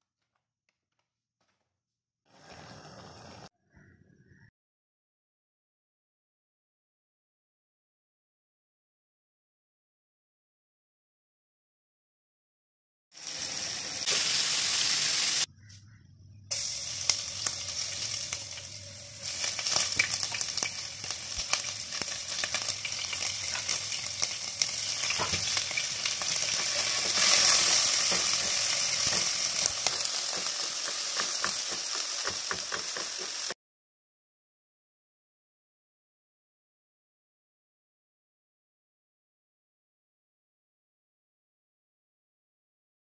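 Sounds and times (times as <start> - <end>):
oil sizzling in a pot: 13.1 - 15.5, 16.5 - 33.6
spatula scraping a pot: 22.8 - 24.3.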